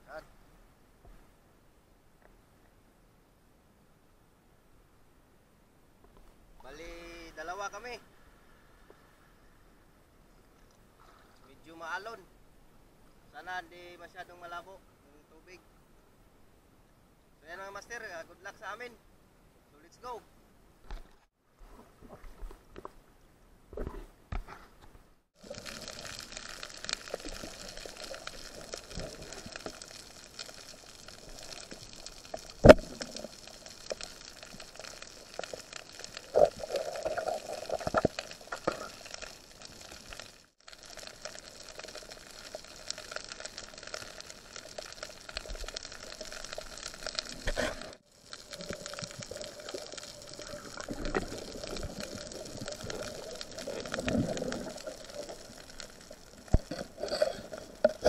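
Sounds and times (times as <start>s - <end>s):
muffled underwater bubbling: 25.4s - 58.0s.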